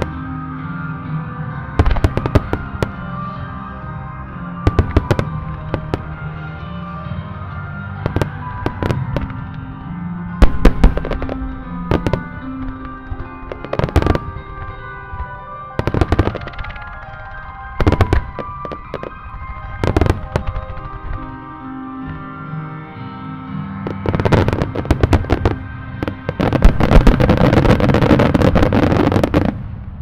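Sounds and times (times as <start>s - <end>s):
recorded music: 0.0s - 30.0s
firework shells bursting: 10.4s - 21.3s.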